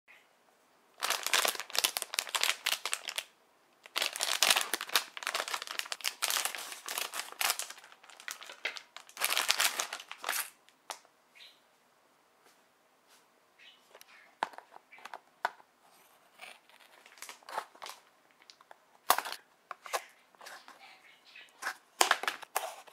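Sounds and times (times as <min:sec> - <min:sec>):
plastic wrapper crackling: 0:01.0 - 0:11.0, 0:16.6 - 0:20.1.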